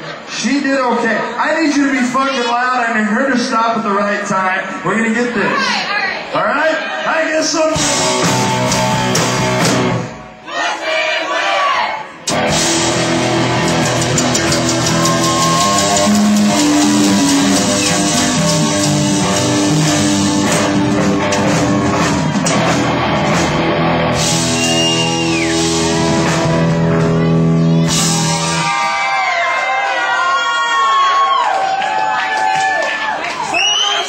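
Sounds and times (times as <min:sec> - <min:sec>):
bass guitar: 0:07.7 - 0:10.3, 0:12.3 - 0:29.0
drum kit: 0:07.7 - 0:10.3, 0:12.2 - 0:29.2
electric guitars: 0:07.8 - 0:10.3, 0:12.2 - 0:28.7.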